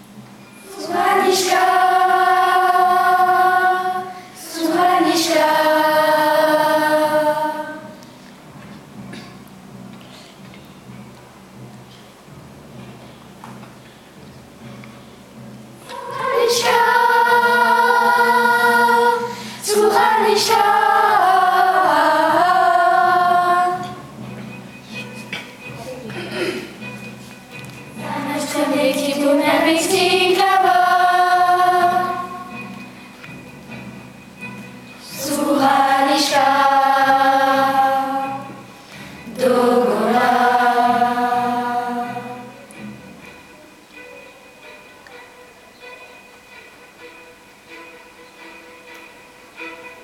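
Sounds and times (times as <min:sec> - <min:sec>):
children singing in unison: 0:00.6 - 0:08.0, 0:15.8 - 0:24.3, 0:27.9 - 0:32.9, 0:35.0 - 0:42.8.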